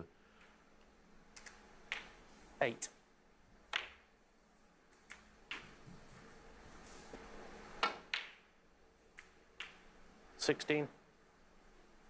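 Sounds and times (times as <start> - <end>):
quiet hall hush: 0.0 - 12.0
snooker balls clicking: 1.3 - 2.2, 3.7 - 4.2, 4.9 - 6.0, 7.8 - 10.0.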